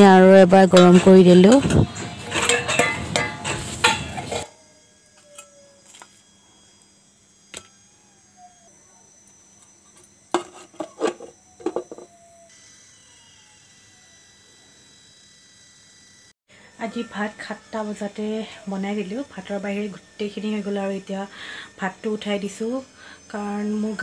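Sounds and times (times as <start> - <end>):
steel utensils clattering: 0.6 - 4.5.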